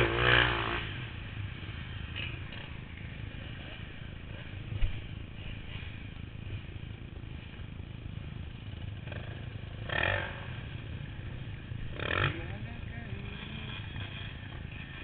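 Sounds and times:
distant motorcycle engines running: 0.0s - 15.0s.

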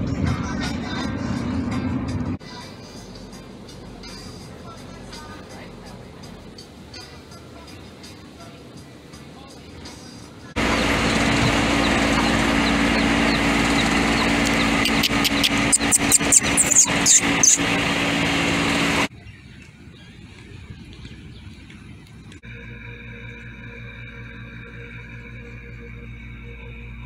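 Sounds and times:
outdoor noise: 0.0s - 27.0s
steady motor hum: 10.2s - 19.1s, 20.0s - 27.0s
chicks peeping: 10.6s - 17.9s.

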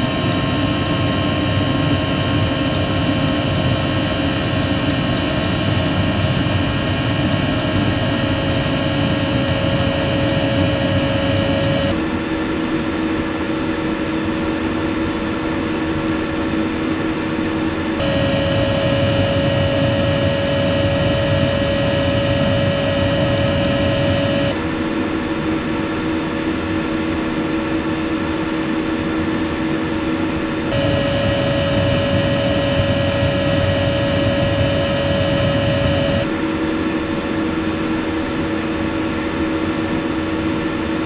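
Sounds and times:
air heater high whine: 0.0s - 12.1s, 18.0s - 24.6s, 30.6s - 36.4s
air heater low hum: 18.0s - 24.6s, 30.7s - 36.3s.

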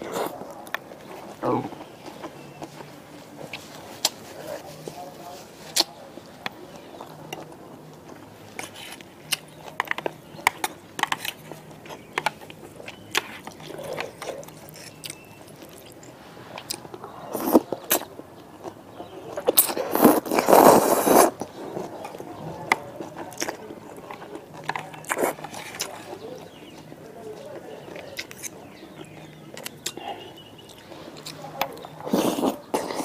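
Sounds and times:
chewing: 0.0s - 33.0s
loud noodle slurp: 19.6s - 21.4s.

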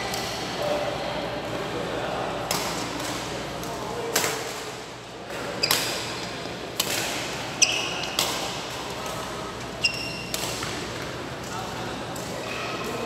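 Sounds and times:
shoes squeaking on court: 5.5s - 6.2s, 7.6s - 8.2s, 9.8s - 10.8s
rackets hitting shuttlecock: 6.8s - 8.9s, 10.0s - 11.1s.

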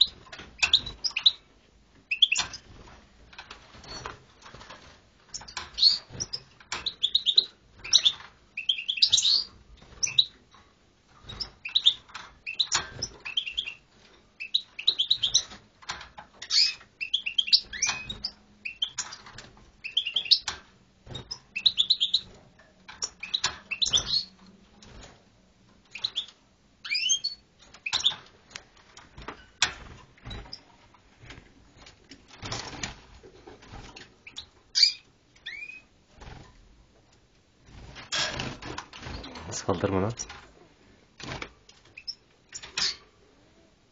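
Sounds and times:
small bird chirping: 2.1s - 2.7s, 5.3s - 10.4s, 11.3s - 13.8s, 14.4s - 15.6s, 16.4s - 20.5s, 21.2s - 22.3s, 23.0s - 24.4s, 25.9s - 28.3s, 34.2s - 35.9s, 42.0s - 43.0s.

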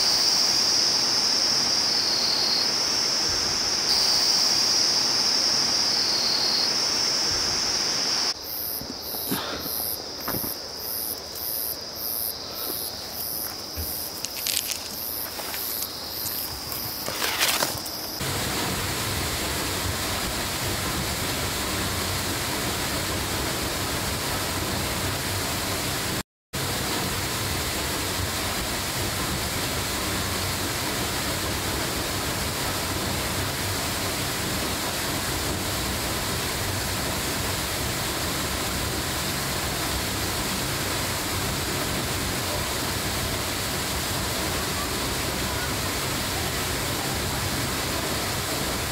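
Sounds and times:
waterfall rushing: 0.0s - 8.4s, 12.4s - 48.9s.

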